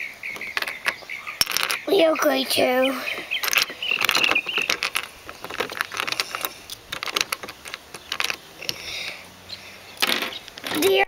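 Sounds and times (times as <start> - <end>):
plastic bricks clicking and clattering: 0.4 - 1.9, 3.4 - 8.8, 10.0 - 11.0.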